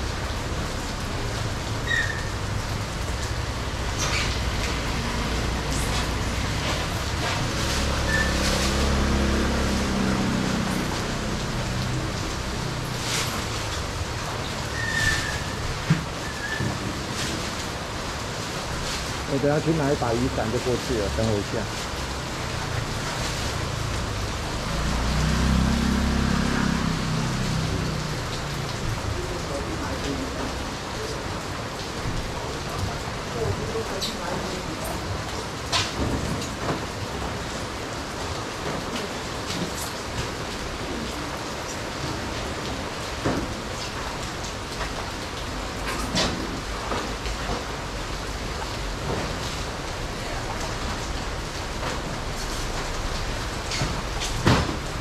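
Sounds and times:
vehicle engine rumbling: 0.0 - 19.5, 20.1 - 55.0
heavy rain falling: 0.0 - 55.0
vehicle passing: 4.9 - 13.3, 22.1 - 28.8.

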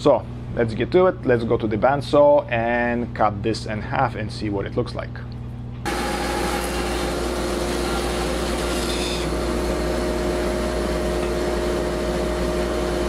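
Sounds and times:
bandsaw cutting: 5.9 - 13.0.

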